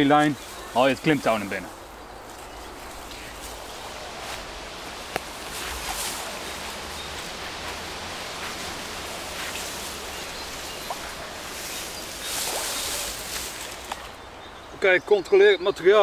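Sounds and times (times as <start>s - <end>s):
outdoor noise: 0.0s - 16.0s
rope swishing through hands: 5.2s - 10.0s, 10.8s - 14.1s.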